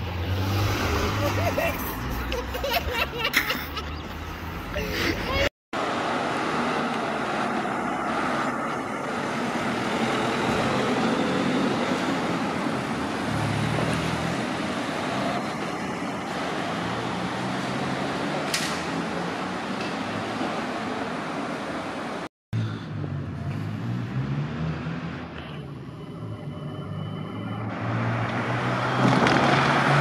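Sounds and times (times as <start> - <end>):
cars driving past: 0.0 - 30.0
police car engine passing: 22.9 - 30.0.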